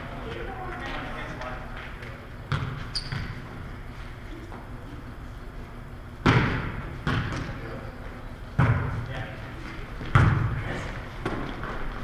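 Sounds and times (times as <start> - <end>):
volleyball being struck: 6.2 - 7.5.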